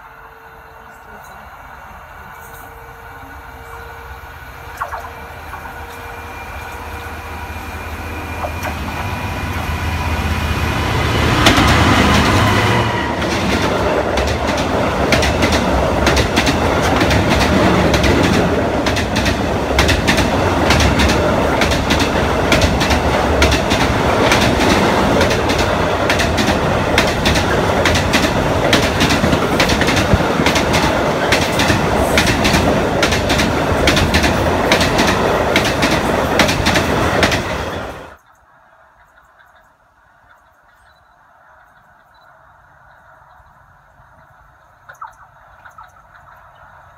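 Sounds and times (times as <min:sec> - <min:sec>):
diesel locomotive passing: 0:00.0 - 0:38.2
wheels clicking on rails: 0:04.8 - 0:39.8.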